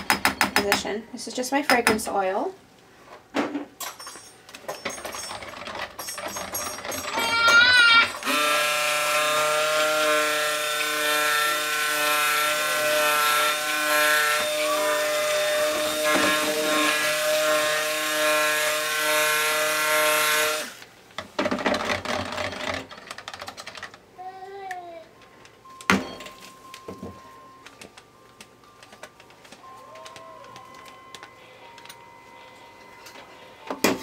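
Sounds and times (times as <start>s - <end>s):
immersion blender motor whine: 7.8s - 20.8s.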